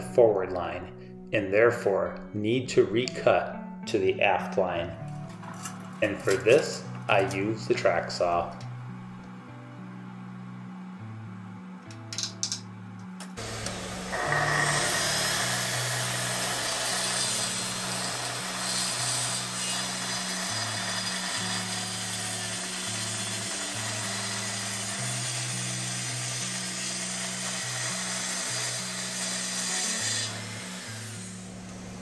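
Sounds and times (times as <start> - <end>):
circular saw cutting wood: 13.4 - 32.0.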